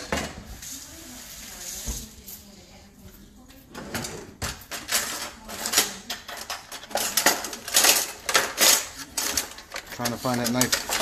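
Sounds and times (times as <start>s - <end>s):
utensils clattering in a drawer: 3.7s - 11.0s.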